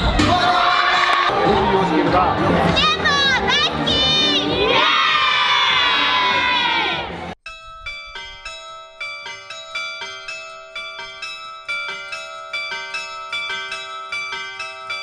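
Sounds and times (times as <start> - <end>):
carillon bells playing melody: 7.4 - 15.0.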